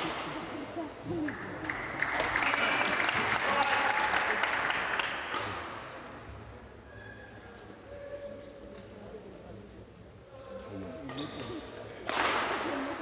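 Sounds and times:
audience applauding: 0:01.6 - 0:05.2.

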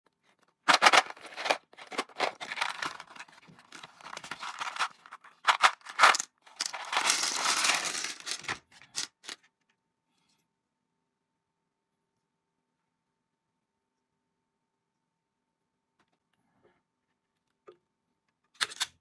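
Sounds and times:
cardboard box rustling and crinkling: 0:00.7 - 0:07.5.

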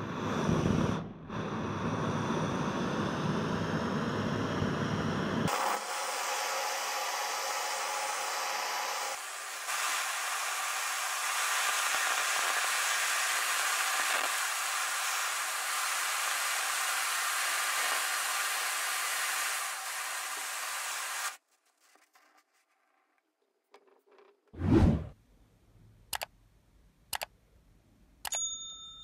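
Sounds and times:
blowtorch hissing: 0:00.0 - 0:21.4.

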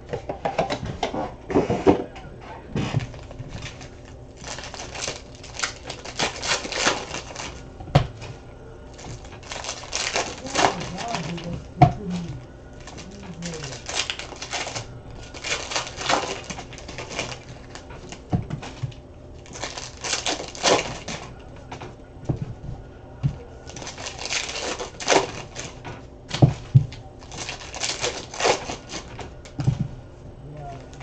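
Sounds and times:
cards rustling: 0:02.6 - 0:22.0, 0:23.4 - 0:29.7
wrapper crinkling: 0:03.0 - 0:07.7, 0:08.9 - 0:21.8, 0:23.6 - 0:29.6.

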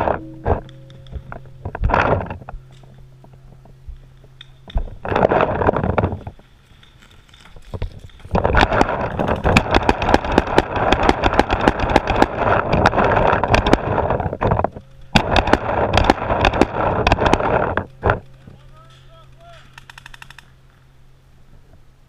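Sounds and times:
paintball markers firing rapidly: 0:08.5 - 0:14.0, 0:15.2 - 0:20.5.

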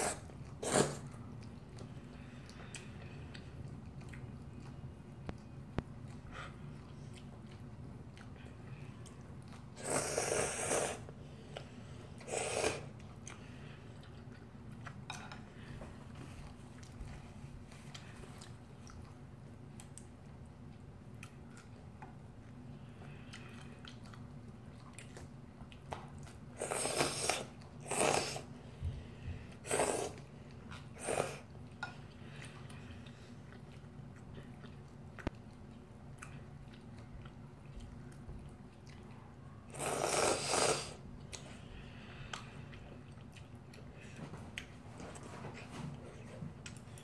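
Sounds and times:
slurping noodles: 0:00.0 - 0:01.2, 0:09.7 - 0:11.2, 0:12.1 - 0:13.0, 0:26.6 - 0:28.5, 0:29.6 - 0:30.3, 0:39.7 - 0:41.0
quiet chewing: 0:00.0 - 0:47.0.

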